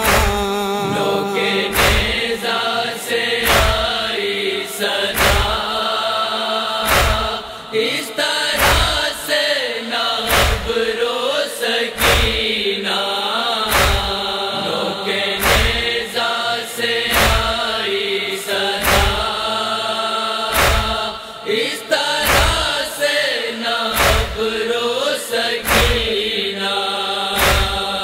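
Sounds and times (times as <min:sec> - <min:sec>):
slow heavy beat: 0:00.0 - 0:02.8
person reciting verses: 0:00.0 - 0:28.0
voices chanting a lament: 0:00.0 - 0:28.0.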